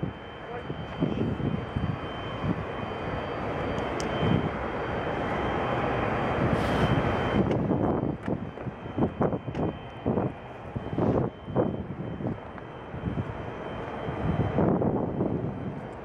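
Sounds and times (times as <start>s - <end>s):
jet engine rushing with high whine: 0.0s - 16.0s.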